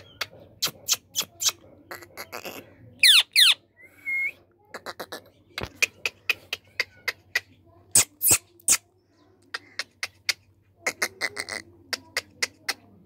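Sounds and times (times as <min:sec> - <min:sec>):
parakeet squawks: 0:01.2 - 0:03.6.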